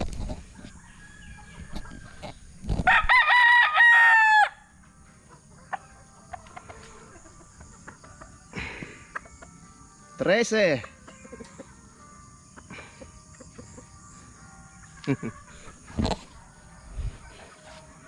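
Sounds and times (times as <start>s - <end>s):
rooster crowing: 0.7s - 4.7s.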